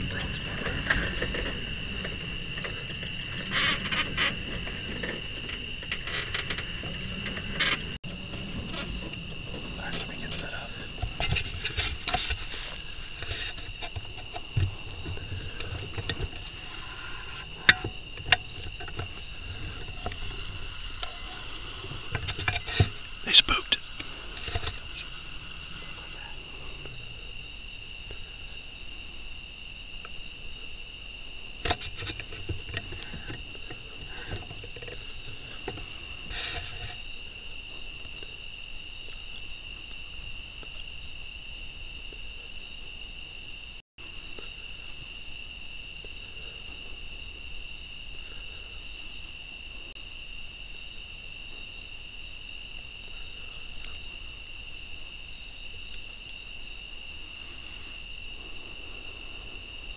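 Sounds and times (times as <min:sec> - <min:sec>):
rustling: 0:00.0 - 0:28.5
night insects trilling: 0:00.0 - 0:59.9.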